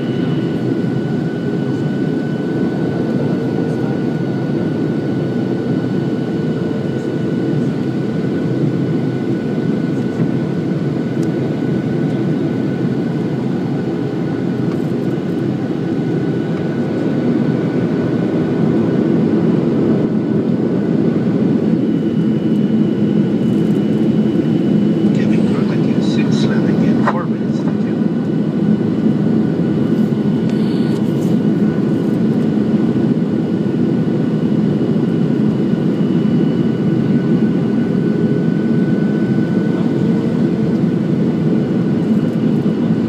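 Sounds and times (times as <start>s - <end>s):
airplane cabin roar: 0.0s - 43.0s
thin steady whine: 21.4s - 33.2s
higher whine: 22.0s - 31.8s.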